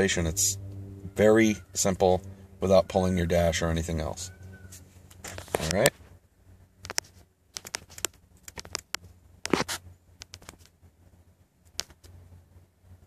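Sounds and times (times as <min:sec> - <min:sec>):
light clicks taps and scratches: 0:06.8 - 0:10.8.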